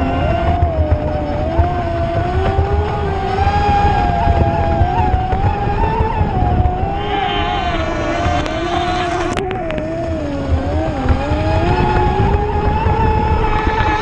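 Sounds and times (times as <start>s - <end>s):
electric speedboat whine: 0.0s - 14.0s
low rumbling noise: 0.0s - 14.0s.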